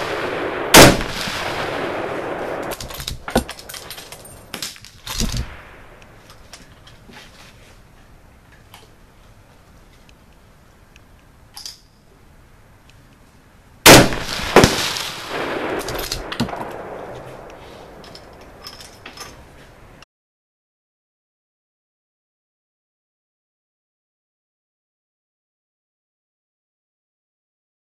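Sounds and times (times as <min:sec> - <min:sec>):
rumbling echo: 0:00.0 - 0:04.6, 0:13.9 - 0:18.7
rifle shot: 0:00.0 - 0:06.0, 0:13.9 - 0:18.0
sharp crack: 0:00.0 - 0:06.4, 0:13.9 - 0:18.6.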